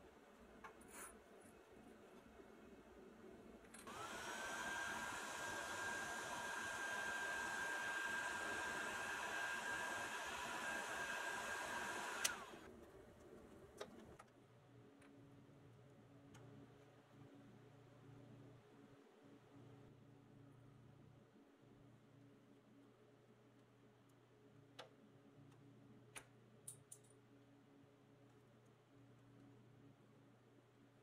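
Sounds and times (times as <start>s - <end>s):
heat gun fan whining: 3.8s - 12.7s.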